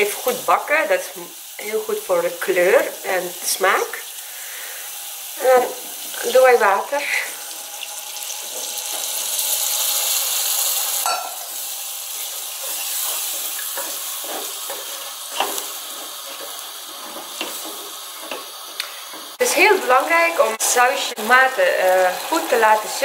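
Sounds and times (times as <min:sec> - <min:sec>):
tomato paste sizzling in oil: 0:00.0 - 0:23.0
wooden spoon scraping a pan: 0:12.1 - 0:20.0.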